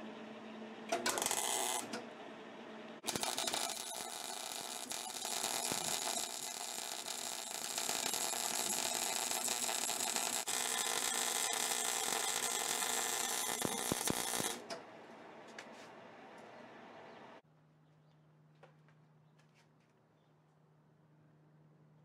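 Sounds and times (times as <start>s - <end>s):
welder arc crackling: 1.0s - 2.0s, 3.0s - 14.8s.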